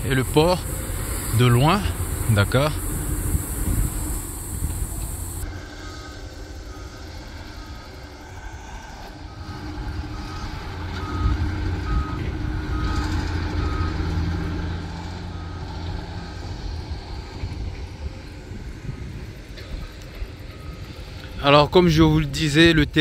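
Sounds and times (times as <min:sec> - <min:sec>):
reversing alarm beeping: 0:00.0 - 0:16.9, 0:19.6 - 0:21.8
diesel machinery rumbling: 0:00.0 - 0:23.0.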